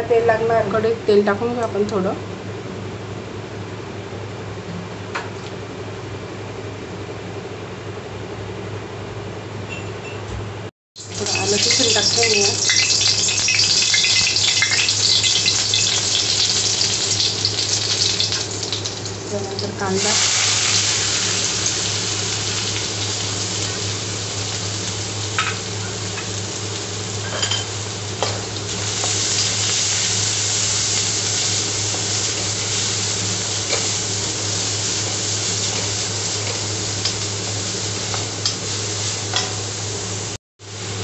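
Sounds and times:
onions sizzling in hot oil: 11.0 - 41.0.

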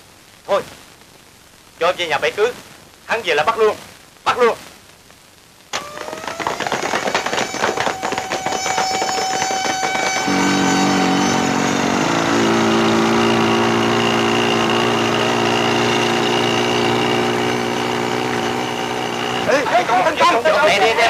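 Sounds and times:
rapid cracks: 5.7 - 10.5
motorbike engine running: 5.8 - 21.0.

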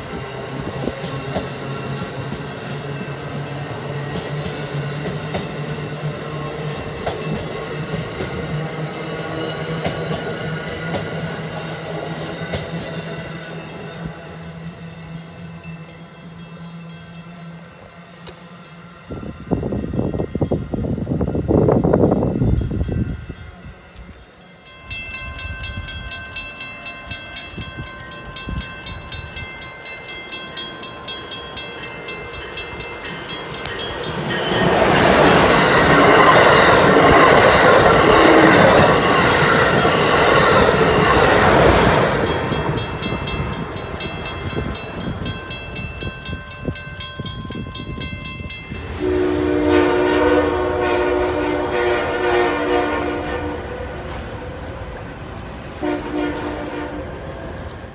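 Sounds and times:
crossing bell ringing: 0.0 - 11.0, 12.4 - 21.0, 21.6 - 54.1
train passing at speed: 0.0 - 57.9
train horn chord: 48.8 - 54.7, 55.8 - 57.2.

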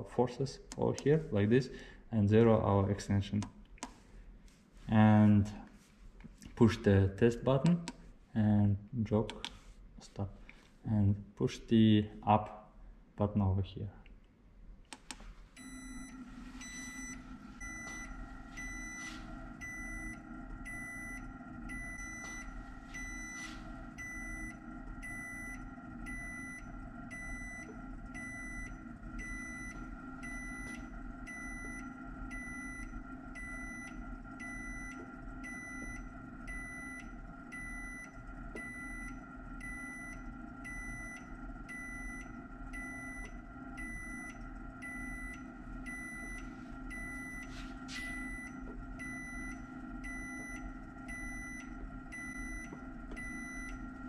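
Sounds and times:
testing machine drive humming and whining: 0.0 - 54.0.

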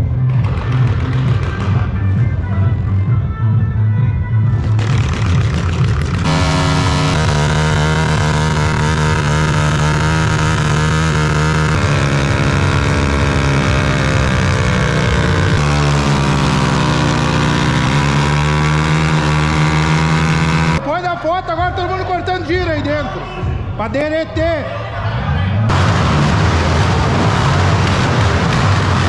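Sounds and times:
motorcycle engine running: 0.0 - 20.8.

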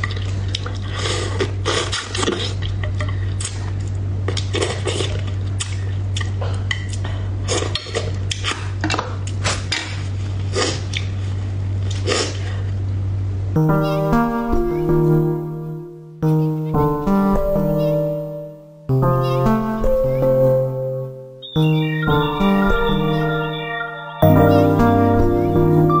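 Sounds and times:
close chewing and mouth sounds: 0.0 - 12.7.

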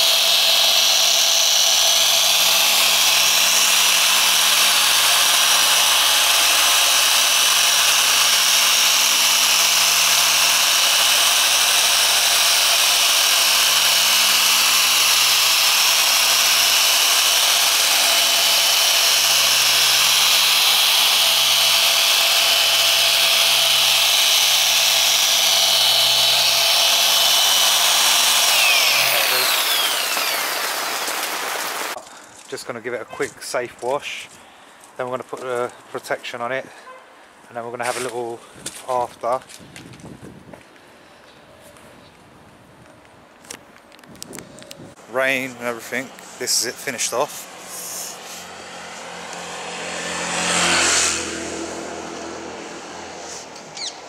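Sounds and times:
polisher motor whine: 0.0 - 32.0, 45.5 - 54.0
polisher winding down: 0.0 - 32.0, 45.5 - 53.8.

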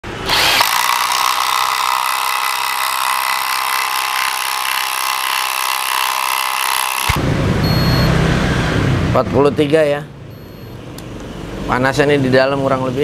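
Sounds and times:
impact driver hammering: 0.3 - 7.2.

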